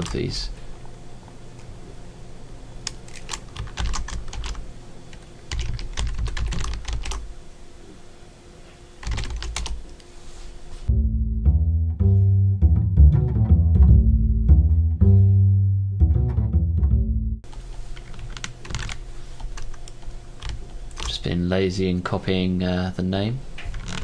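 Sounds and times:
typing on computer keyboard: 3.1 - 7.2, 9.0 - 9.8, 18.0 - 21.2
plucked and bowed string music: 10.9 - 17.4.

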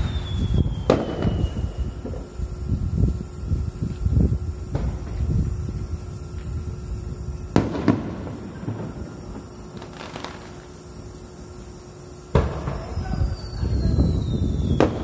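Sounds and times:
faint firework pops: 0.0 - 2.4, 4.7 - 5.6, 7.5 - 10.7, 12.3 - 15.0
firework bangs: 0.0 - 15.0.

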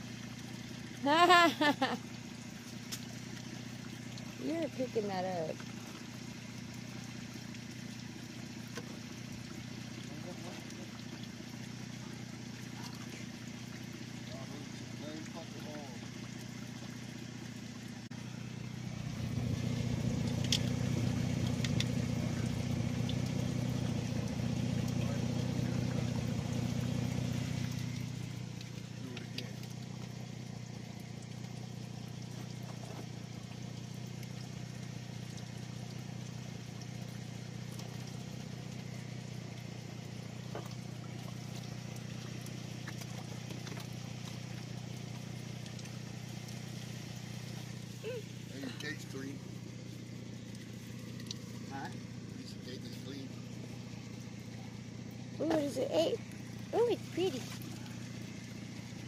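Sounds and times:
vehicle engine idling: 0.0 - 59.0.

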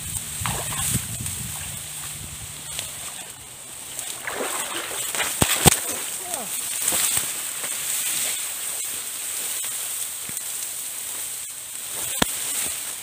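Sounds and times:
grass rustling and swishing: 0.0 - 13.0
steady high hiss: 0.0 - 13.0
sharp snap: 4.9 - 6.0.

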